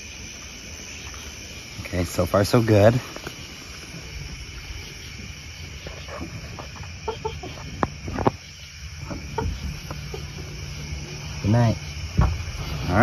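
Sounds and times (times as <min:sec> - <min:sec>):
chickens clucking: 0:04.0 - 0:11.5
sharp knocks: 0:12.0 - 0:12.8.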